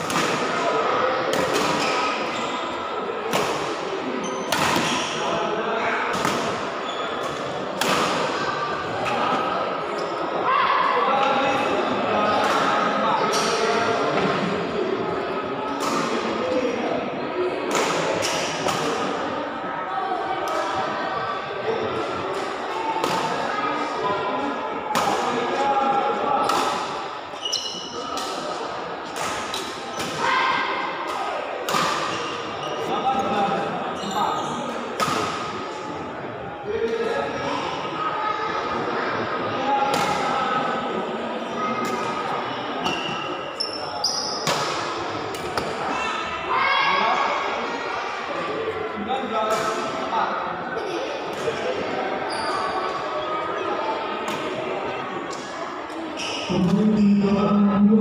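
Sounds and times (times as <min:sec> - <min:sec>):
hum of spectators' voices: 0:00.0 - 0:58.0
shoe squeak: 0:06.8 - 0:07.3, 0:27.4 - 0:28.1, 0:34.0 - 0:34.6, 0:42.8 - 0:44.5, 0:52.2 - 0:52.9, 0:56.1 - 0:57.1
racket hitting shuttlecock: 0:31.1 - 0:32.3, 0:35.0 - 0:35.6.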